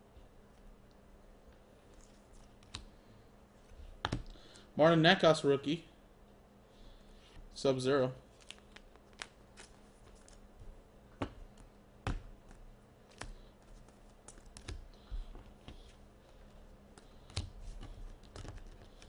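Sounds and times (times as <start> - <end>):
cards clicking and tapping: 11.2 - 15.9, 16.9 - 19.0.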